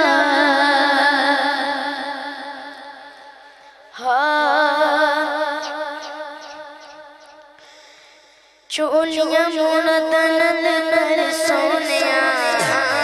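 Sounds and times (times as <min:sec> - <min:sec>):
boy singing into a microphone: 0:00.0 - 0:02.9, 0:03.9 - 0:07.0, 0:08.7 - 0:13.0.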